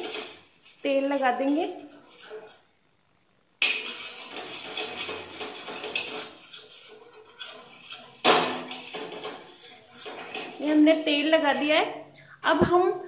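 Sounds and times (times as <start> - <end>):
steel spoon scraping iron pan: 0.0 - 2.7, 3.6 - 12.5.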